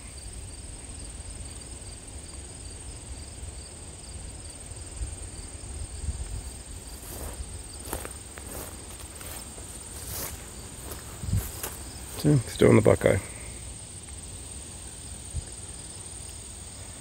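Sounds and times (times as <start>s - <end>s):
insects trilling: 0.0s - 17.0s
pulsing insect call: 0.0s - 17.0s
footsteps: 6.2s - 13.2s.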